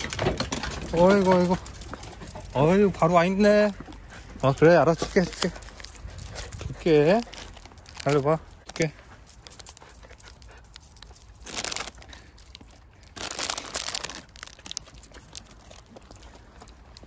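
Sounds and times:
small crunches and clicks: 0:03.9 - 0:17.0
treat bag rustling and crinkling: 0:04.9 - 0:17.0.

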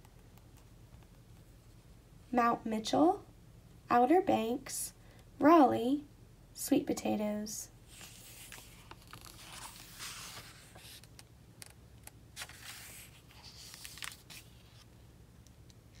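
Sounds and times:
paper pages rustling: 0:07.9 - 0:14.9.

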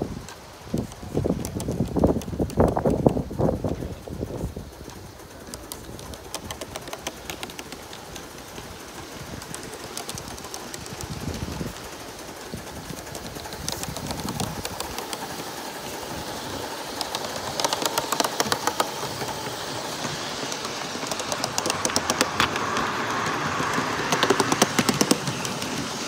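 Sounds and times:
rapid regular clicking: 0:00.0 - 0:26.0
steam hiss: 0:00.0 - 0:26.0.

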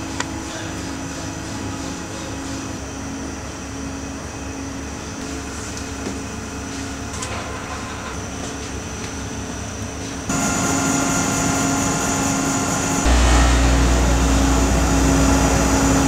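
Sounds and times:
machinery droning: 0:10.3 - 0:16.0.

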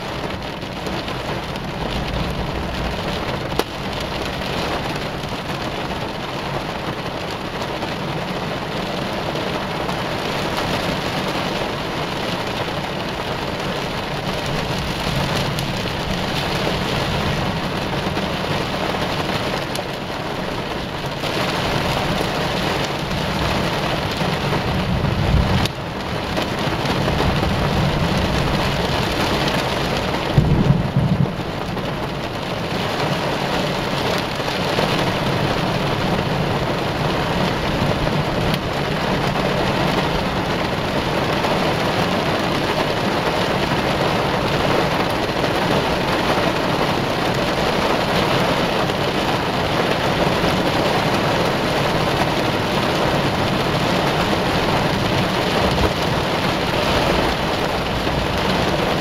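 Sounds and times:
thunder rumbling: 0:00.0 - 0:08.2, 0:11.7 - 0:44.6
heavy rain: 0:00.0 - 0:59.0.

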